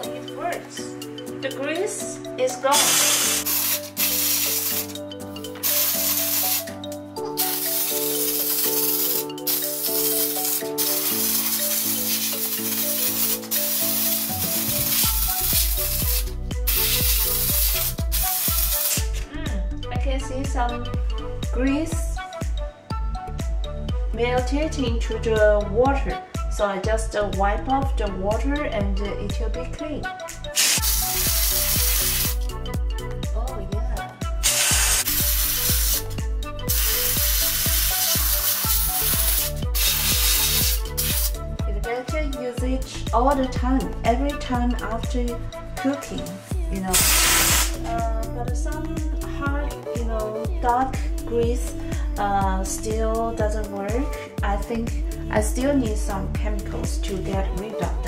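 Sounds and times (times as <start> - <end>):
background music: 0.0 - 58.0
steam cleaner hissing: 2.8 - 4.9, 5.6 - 6.7, 7.4 - 19.1, 30.6 - 32.4, 34.4 - 36.1, 36.7 - 41.3, 47.0 - 47.8
steady beat: 7.4 - 19.1.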